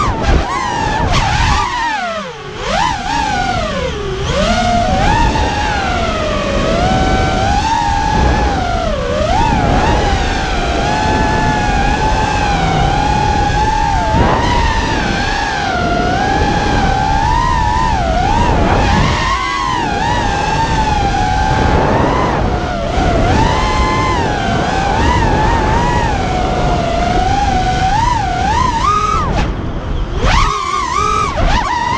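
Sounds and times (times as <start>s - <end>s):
quadcopter motors whining: 0.0s - 31.9s
wind rushing: 0.0s - 31.9s.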